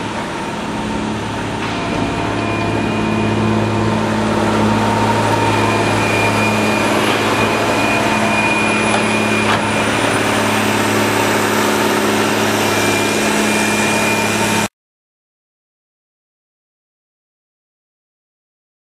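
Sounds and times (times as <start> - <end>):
diesel engine running: 0.0 - 14.7.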